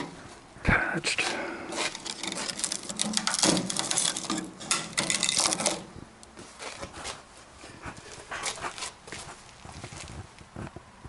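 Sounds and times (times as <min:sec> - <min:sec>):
sheet metal crackling and scraping: 0:01.1 - 0:06.0.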